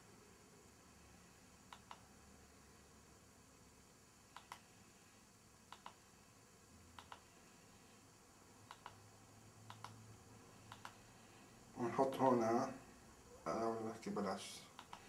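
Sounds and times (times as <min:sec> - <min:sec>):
faint double clicks: 0:01.7 - 0:02.1, 0:04.3 - 0:04.6, 0:05.7 - 0:06.0, 0:07.0 - 0:07.3, 0:08.6 - 0:09.0, 0:09.7 - 0:10.0, 0:10.7 - 0:11.0, 0:14.7 - 0:15.0.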